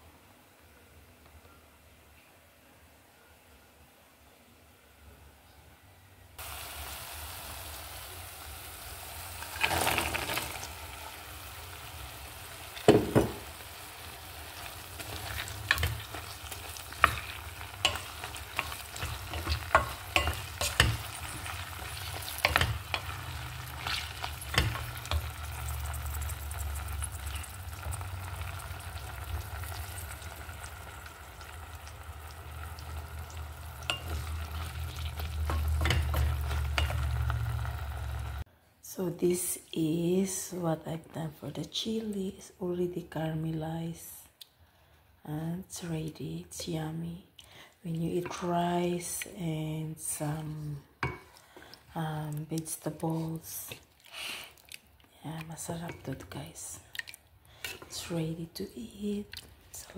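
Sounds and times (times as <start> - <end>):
chilies and onion sizzling in oil: 6.4 - 38.5, 48.0 - 59.9
wooden spoon knocking and scraping pot: 15.0 - 26.0, 33.8 - 37.8.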